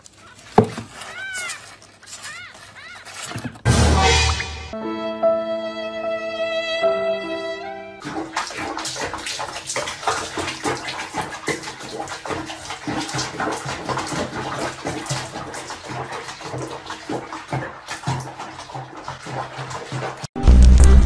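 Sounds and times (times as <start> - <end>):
bath water splashing: 6.9 - 21.0.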